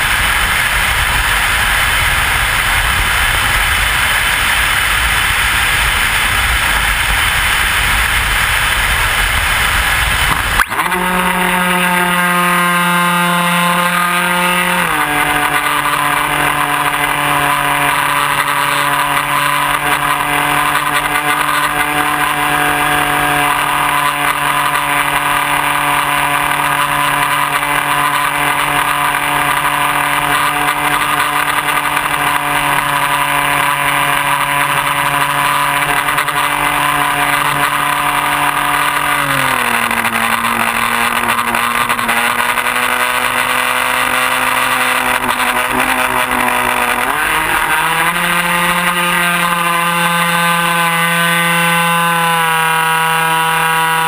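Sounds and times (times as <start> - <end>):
wind rush over microphone: 0.0 - 11.0
electric motor and propeller running: 0.0 - 54.0.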